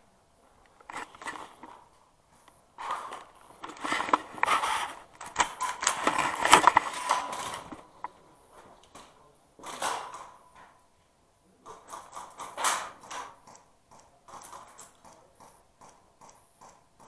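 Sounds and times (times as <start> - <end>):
footsteps: 0.4 - 9.8
clatter of carried gear: 0.8 - 1.8, 2.8 - 8.1.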